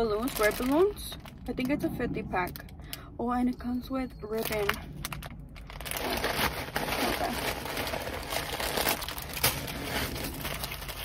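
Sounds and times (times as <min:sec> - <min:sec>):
plastic bag crinkling: 0:00.0 - 0:01.8, 0:04.4 - 0:11.0.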